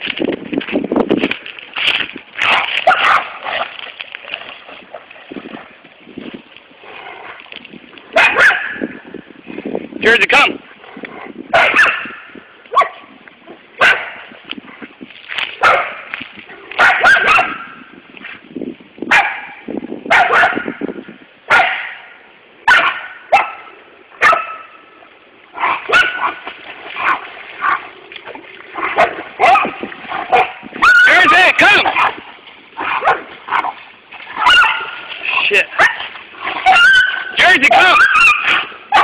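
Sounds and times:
dog yipping and whining: 30.4s - 31.2s, 36.6s - 39.0s.

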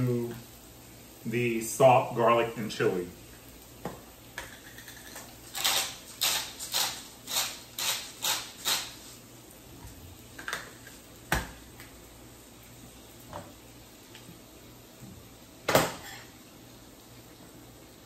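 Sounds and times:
spice grinder rasping: 4.6s - 9.0s.

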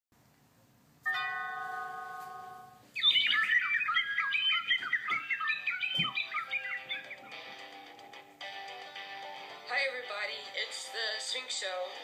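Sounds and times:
held chime-like chord: 1.1s - 2.8s
high warbling bird-like chirps: 1.1s - 7.7s.

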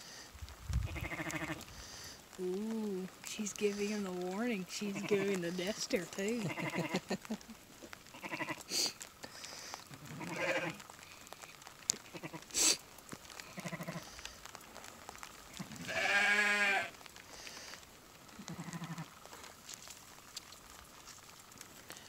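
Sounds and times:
sheep bleating: 0.9s - 1.6s, 4.9s - 5.4s, 6.4s - 7.1s, 8.1s - 8.7s, 10.0s - 10.8s, 12.0s - 12.5s, 13.5s - 14.0s, 15.5s - 17.0s, 18.4s - 19.2s.

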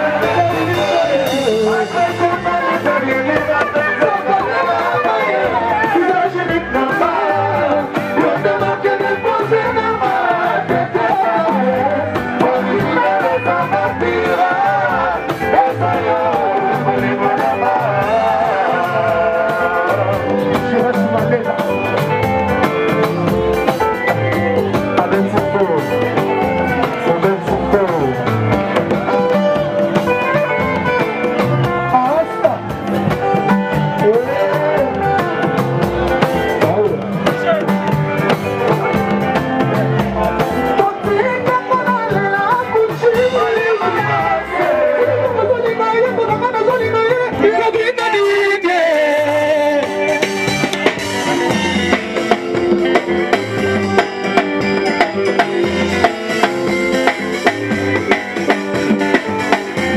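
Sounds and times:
person singing: 0.0s - 22.0s, 33.2s - 54.4s
steady drum beat: 0.0s - 48.3s, 49.2s - 59.9s
plucked electric guitar: 0.0s - 59.9s.

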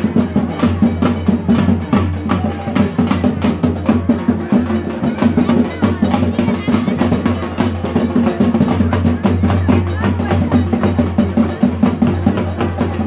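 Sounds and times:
fast drum beat: 0.0s - 13.0s.

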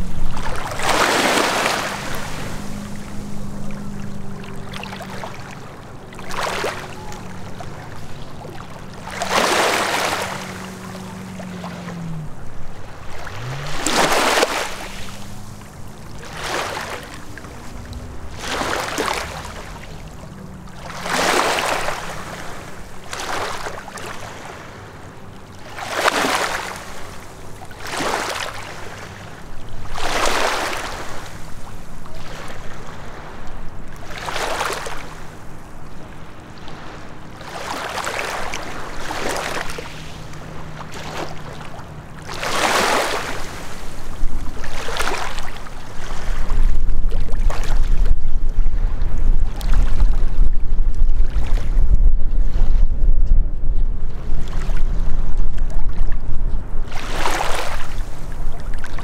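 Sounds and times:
waves lapping at shore: 0.0s - 50.4s, 51.2s - 51.8s, 54.0s - 59.0s
distant motorboat engine drone: 0.0s - 59.0s.

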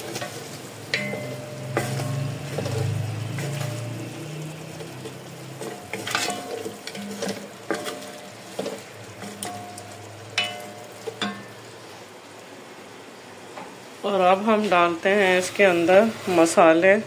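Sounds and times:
wooden spoon scraping a metal pot: 0.0s - 11.5s
chicken frying in oil: 0.0s - 12.6s, 14.0s - 17.0s.

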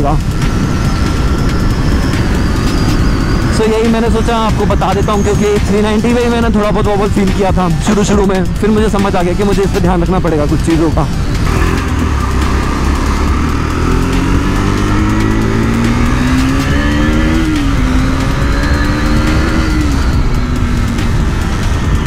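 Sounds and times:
motorcycle engine accelerating: 0.0s - 22.0s.

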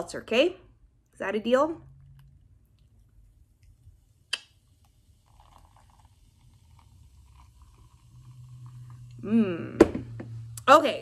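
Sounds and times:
beer pouring and fizzing: 1.9s - 10.7s.

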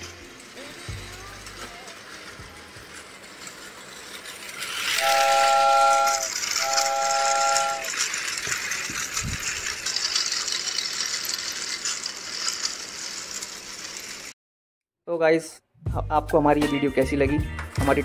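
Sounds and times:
toy train motor whir and rattle: 0.0s - 14.4s
toy steam whistle effect: 4.7s - 8.1s.

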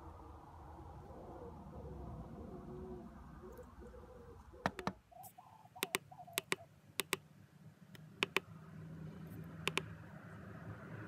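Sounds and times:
keypad buttons clicking: 4.7s - 5.0s, 5.8s - 7.2s, 8.0s - 8.4s, 9.7s - 9.9s.

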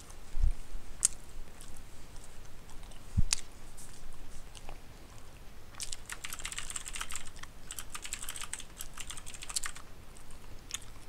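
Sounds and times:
computer keyboard typing clicks: 5.8s - 9.8s.

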